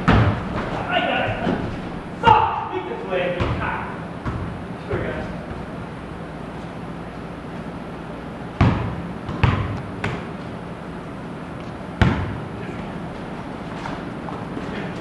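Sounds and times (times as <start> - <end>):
basketball bouncing in a hall: 0.0 - 5.8, 8.4 - 10.6, 11.9 - 15.0.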